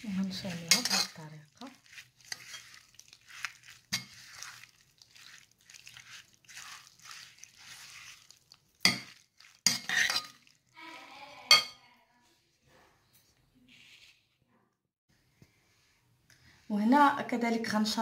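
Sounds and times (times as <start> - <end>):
soft wet swishes: 0.0 - 10.8
spoon clinking against bowl: 11.5 - 11.8.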